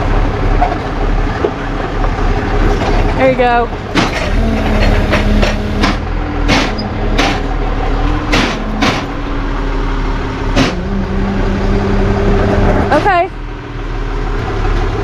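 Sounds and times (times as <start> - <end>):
truck engine idling: 0.0 - 15.0
metallic clanks and knocks: 3.9 - 9.6.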